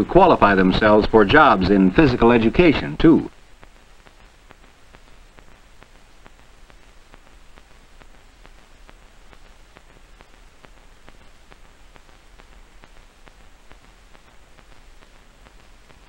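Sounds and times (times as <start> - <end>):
film soundtrack hiss: 0.0 - 16.0
soft regular clicks: 3.3 - 16.0.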